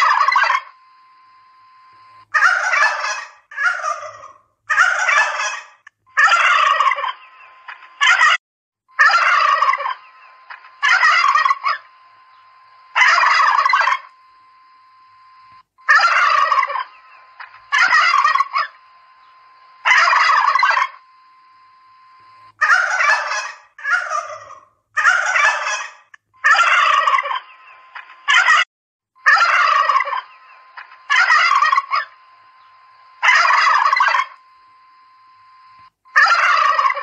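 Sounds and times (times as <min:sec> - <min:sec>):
turkeys gobbling: 0:00.0 - 0:00.7, 0:02.3 - 0:08.4, 0:09.0 - 0:14.1, 0:15.8 - 0:21.0, 0:22.6 - 0:27.7, 0:28.3 - 0:28.6, 0:29.2 - 0:32.2, 0:33.2 - 0:34.4, 0:36.1 - 0:37.0.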